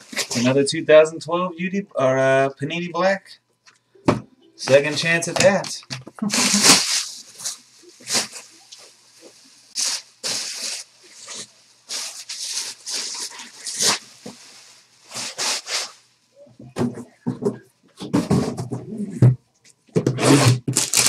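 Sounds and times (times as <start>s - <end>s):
bubble wrap crumpling: 6.2s - 16.0s, 20.2s - 21.0s.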